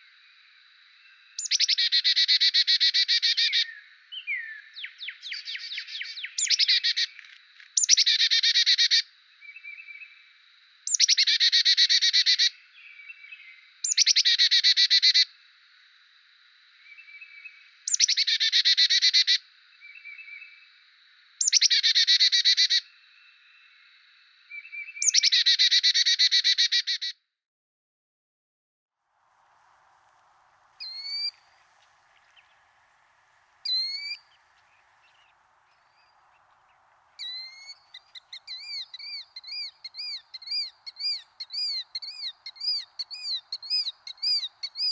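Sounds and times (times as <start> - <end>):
chickadee calling: 30.7 - 44.9.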